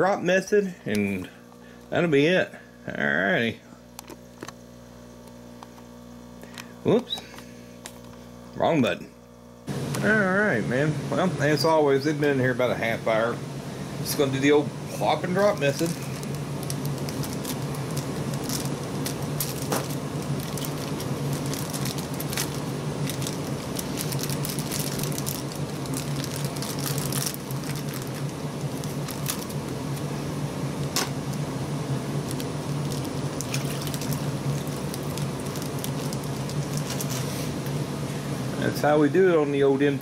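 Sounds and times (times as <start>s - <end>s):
steady low hum: 0.0s - 40.0s
plastic bags crinkling: 15.4s - 30.0s, 32.2s - 37.4s.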